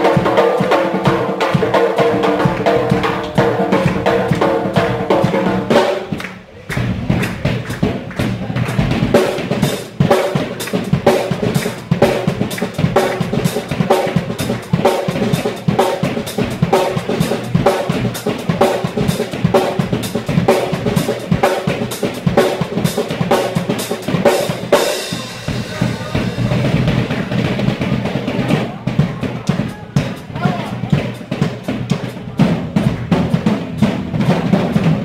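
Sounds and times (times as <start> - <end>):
live band music: 0.0 - 35.0.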